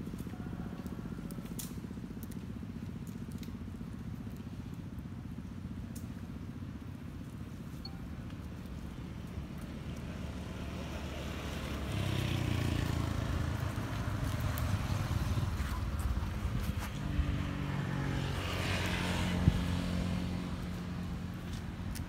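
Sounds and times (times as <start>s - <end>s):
vehicle engine humming: 0.0s - 22.0s.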